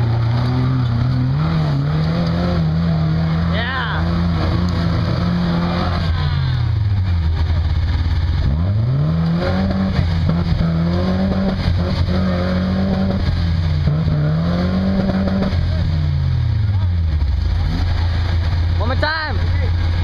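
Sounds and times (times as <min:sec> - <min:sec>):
truck engine revving: 0:00.0 - 0:20.0.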